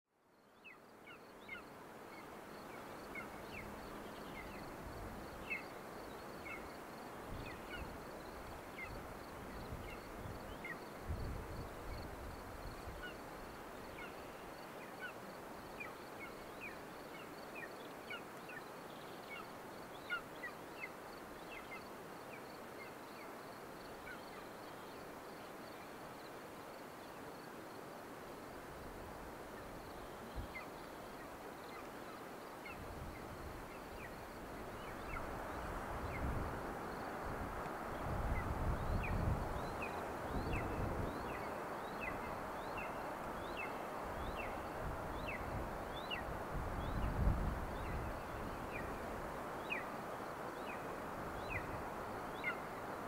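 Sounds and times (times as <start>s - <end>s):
outdoor background hiss: 0.1s - 53.0s
low wind rumble: 32.8s - 49.6s.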